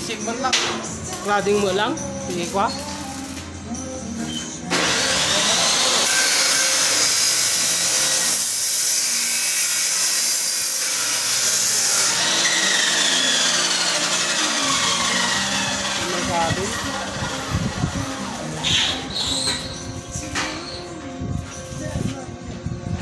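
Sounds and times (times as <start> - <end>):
power cutting tool cutting: 4.7 - 19.3.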